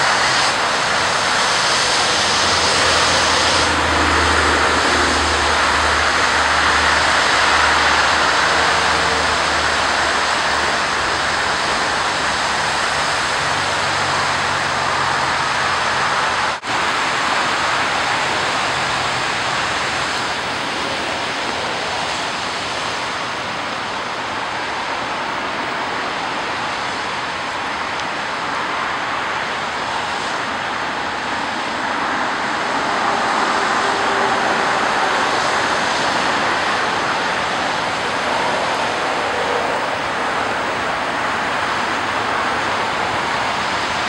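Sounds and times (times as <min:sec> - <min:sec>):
creek water rushing: 0:00.0 - 0:44.0.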